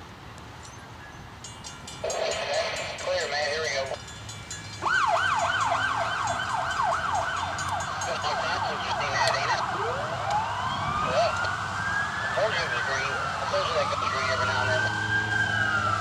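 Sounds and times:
emergency vehicle siren: 4.7s - 16.0s.

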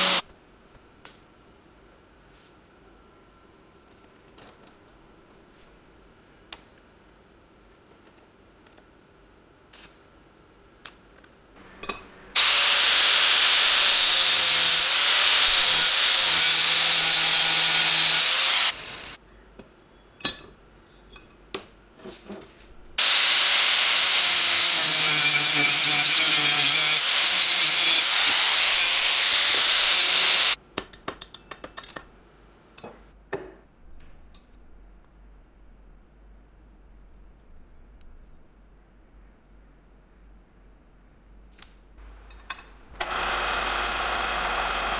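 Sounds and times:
power tool on steel: 0.0s - 0.2s, 12.3s - 19.2s, 23.0s - 30.6s, 43.0s - 44.9s.

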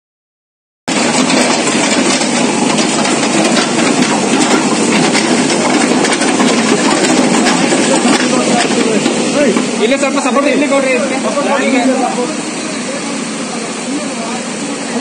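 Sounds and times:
diesel engine running: 0.9s - 15.0s.

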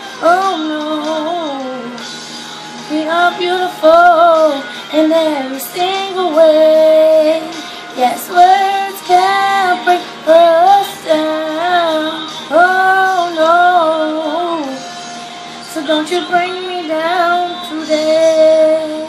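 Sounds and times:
girl singing unaccompanied: 2.9s - 14.8s, 15.7s - 19.0s.

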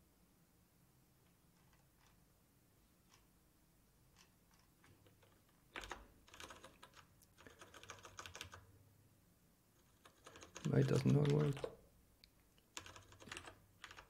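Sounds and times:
typing on computer keyboard: 4.2s - 8.7s, 9.8s - 11.8s, 12.6s - 14.0s.

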